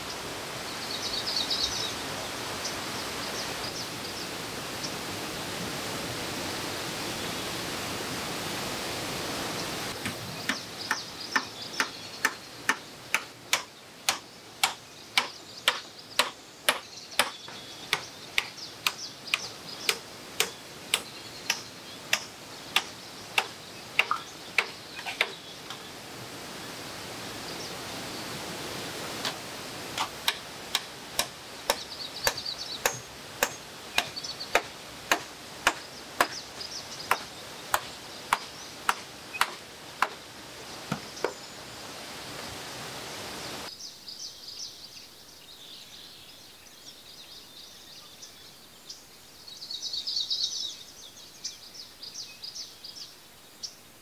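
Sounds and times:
forest hiss: 0.0 - 54.0
hammer striking bamboo pole: 10.0 - 25.3, 30.0 - 36.4, 37.1 - 40.2.

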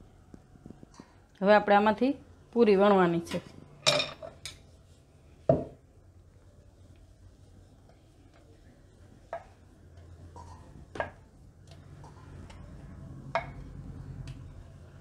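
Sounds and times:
rolling pin rolling dough: 6.5 - 15.0.

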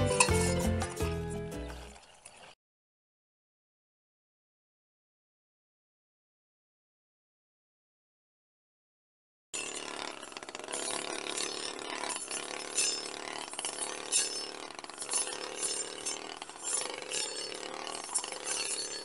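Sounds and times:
brush cutter cutting grass: 0.0 - 2.0, 9.6 - 19.0.

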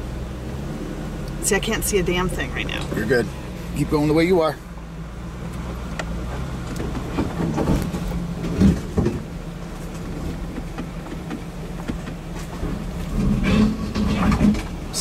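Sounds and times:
engine running at crawling speed: 0.0 - 15.0
vehicle knocking over rocks: 6.8 - 9.3, 10.0 - 14.8.

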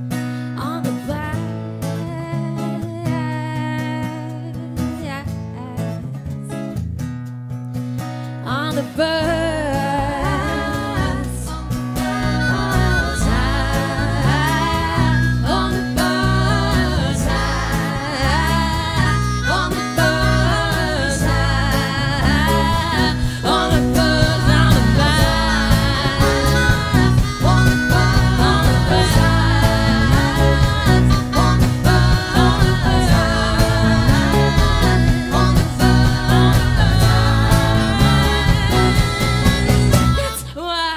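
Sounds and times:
woman singing: 0.6 - 6.2, 8.4 - 40.9
blues band playing: 9.2 - 40.6
harmonica: 10.1 - 40.9.

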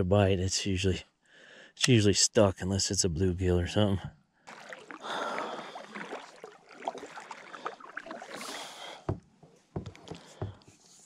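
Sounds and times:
water splashing: 4.5 - 9.2
kayak paddle strokes through water: 4.5 - 11.0.

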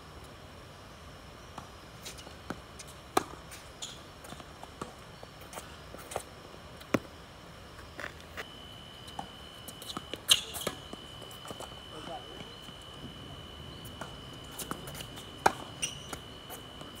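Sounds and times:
tennis ball strikes and bounces: 14.0 - 16.2.

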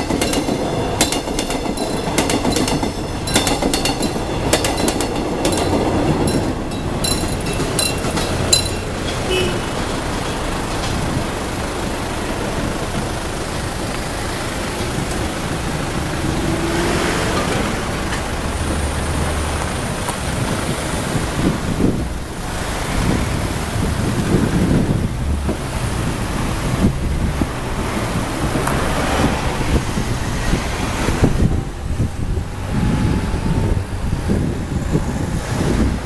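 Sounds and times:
cars passing: 0.0 - 36.0.

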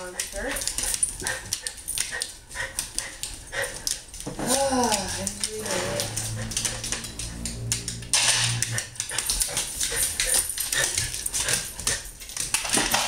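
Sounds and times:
dog groaning: 3.6 - 8.0.

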